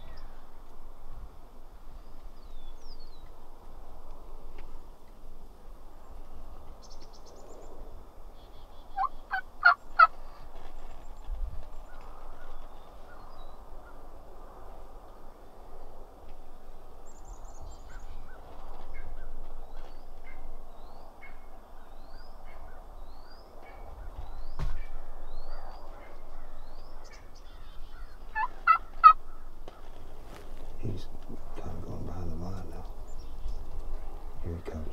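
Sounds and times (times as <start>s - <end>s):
steady low hiss: 0.0s - 34.9s
turkey gobbling: 8.9s - 10.2s, 27.1s - 29.8s.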